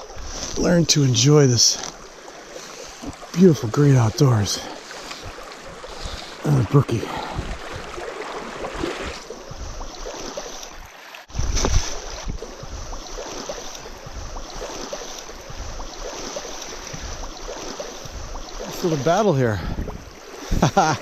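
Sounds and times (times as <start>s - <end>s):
stream running over rocks: 0.0s - 21.0s
wind: 0.0s - 21.0s
microphone handling noise: 11.3s - 12.8s.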